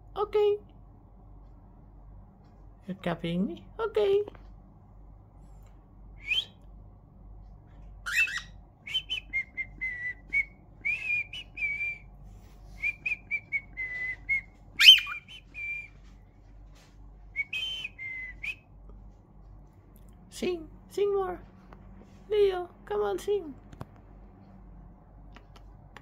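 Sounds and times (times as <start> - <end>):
cockatiel whistling: 8.0 - 12.0, 12.8 - 16.0, 17.4 - 18.6
sharp bird chirps: 14.8 - 15.7.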